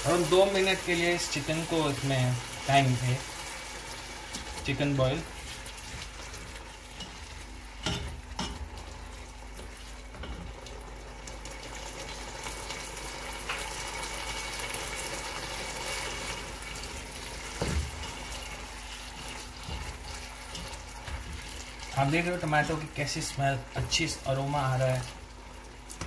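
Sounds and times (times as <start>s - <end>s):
spatula stirring: 0.0s - 10.5s, 17.0s - 23.2s
sauce sizzling in a pot: 0.0s - 26.0s.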